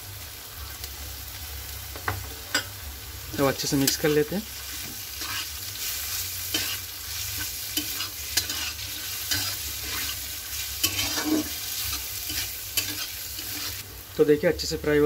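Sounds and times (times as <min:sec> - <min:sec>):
vegetables sizzling in oil: 0:00.0 - 0:15.0
metal spatula scraping pan: 0:04.7 - 0:13.8.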